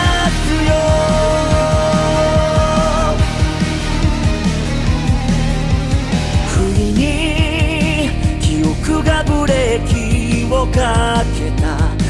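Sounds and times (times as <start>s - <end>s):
man singing a long note: 0.0s - 3.5s
pop-rock band with drum beat: 0.0s - 12.0s.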